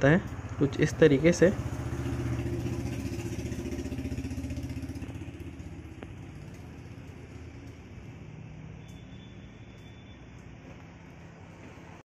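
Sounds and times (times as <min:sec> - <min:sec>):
motor engine running: 0:00.2 - 0:08.4.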